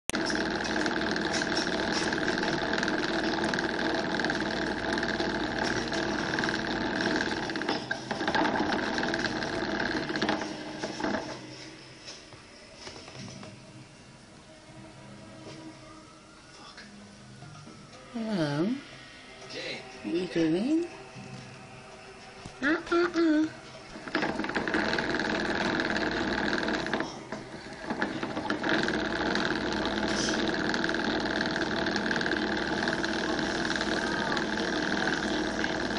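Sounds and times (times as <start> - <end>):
hamster wheel spinning and rattling: 0.1 - 11.6, 24.0 - 35.9.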